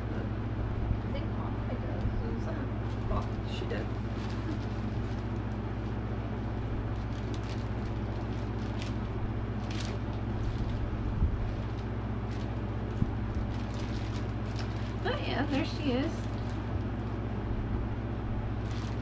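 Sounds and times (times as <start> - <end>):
low room hum: 0.0 - 19.0
plastic wrapping crinkling: 2.9 - 17.3, 18.5 - 19.0.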